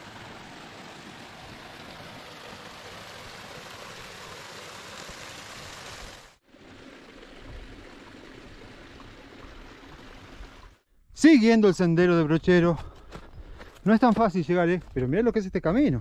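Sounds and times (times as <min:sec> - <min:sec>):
stream splashing over rocks: 0:00.0 - 0:10.8.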